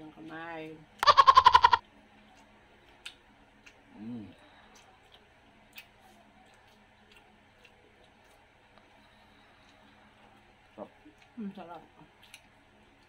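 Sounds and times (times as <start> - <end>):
mouth clicks and smacks eating: 1.0 - 3.9, 4.7 - 8.9, 11.0 - 13.0.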